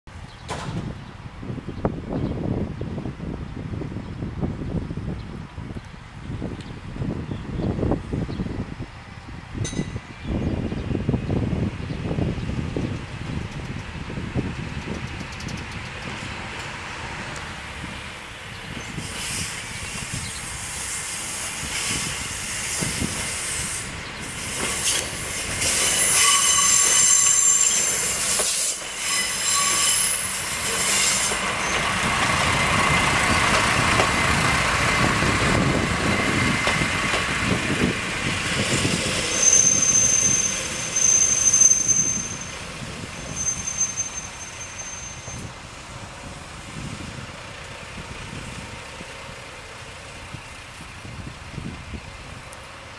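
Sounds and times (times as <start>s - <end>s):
diesel railcar engine and wheels: 0.1s - 52.9s
high-pitched wheel squeals: 25.7s - 31.9s, 39.0s - 45.6s.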